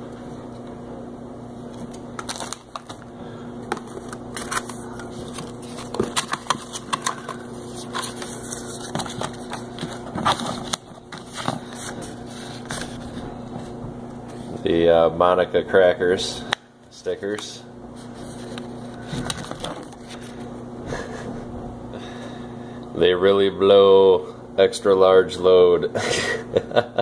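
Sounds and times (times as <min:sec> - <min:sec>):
plastic bags crinkling: 0:02.2 - 0:13.2.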